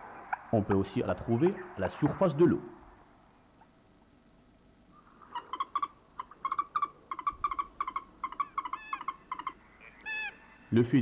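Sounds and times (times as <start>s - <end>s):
moorhen calling: 4.9s - 11.0s.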